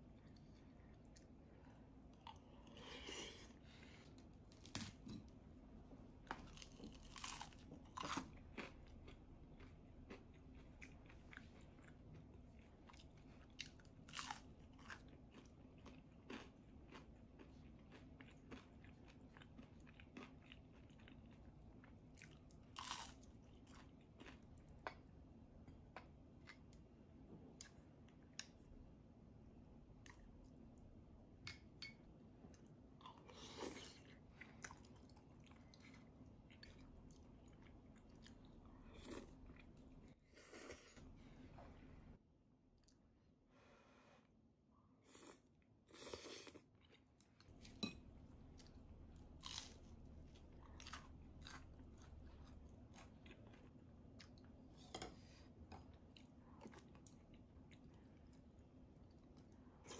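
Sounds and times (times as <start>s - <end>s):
crunchy bites and chewing: 6.3s - 10.2s, 22.2s - 24.4s, 48.6s - 49.9s.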